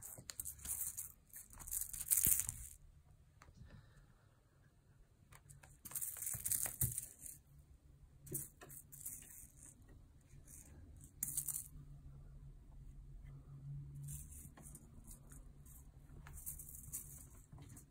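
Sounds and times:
toys rustling and rattling: 0:00.0 - 0:02.8, 0:05.4 - 0:07.5, 0:08.3 - 0:11.8, 0:14.0 - 0:17.9.

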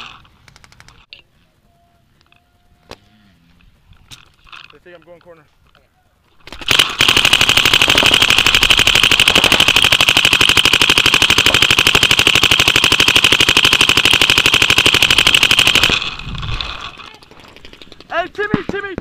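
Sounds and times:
paintball marker rapid firing: 0:06.4 - 0:19.0.

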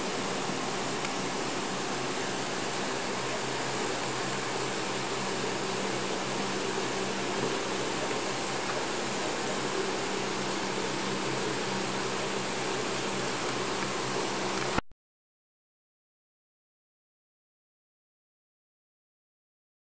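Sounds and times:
constant hiss: 0:00.0 - 0:14.8
machinery hum: 0:00.0 - 0:14.8.

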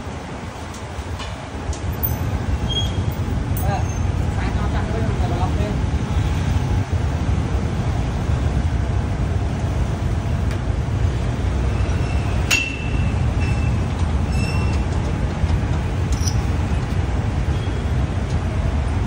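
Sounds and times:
street traffic rumble: 0:00.0 - 0:19.0
sharp metallic clink: 0:12.5 - 0:13.6.

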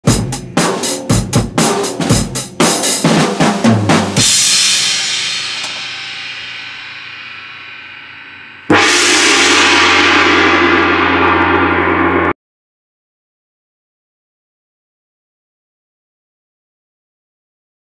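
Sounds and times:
drum kit fills: 0:00.0 - 0:12.4
cymbal crashes: 0:04.2 - 0:12.4
gong ringing: 0:05.0 - 0:12.4.

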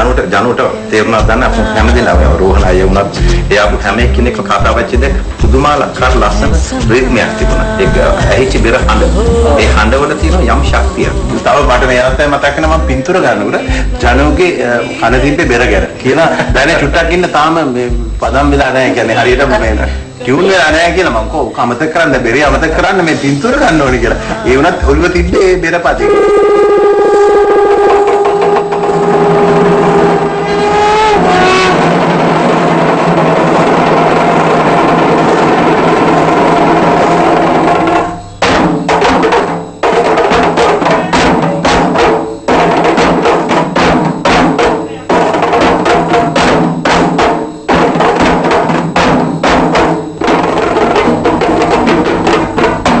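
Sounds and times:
drums in fast rhythmic strokes: 0:00.0 - 0:53.0
conch shell blown: 0:26.0 - 0:53.0.

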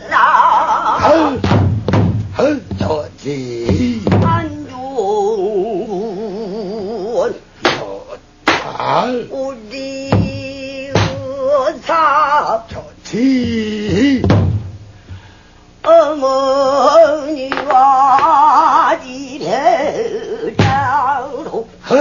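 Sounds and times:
barrel drum strokes: 0:01.3 - 0:04.6, 0:10.1 - 0:11.4, 0:13.4 - 0:15.2
woman singing: 0:02.7 - 0:07.0, 0:15.8 - 0:22.0.

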